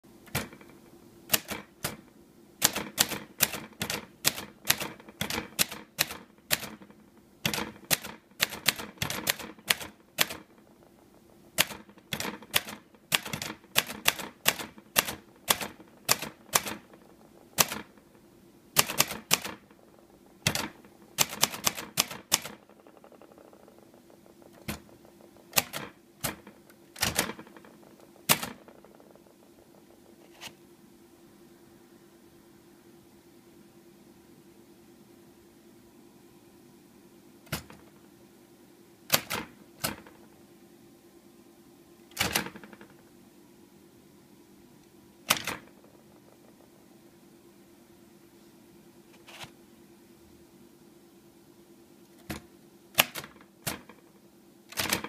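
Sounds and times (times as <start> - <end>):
manual typewriter typing: 0.2 - 0.7, 1.3 - 2.0, 2.6 - 10.6, 11.5 - 18.0, 18.8 - 19.8, 20.4 - 22.8, 24.5 - 28.9, 39.1 - 40.2, 42.1 - 42.9, 45.2 - 45.9, 52.2 - 54.0, 54.7 - 55.0.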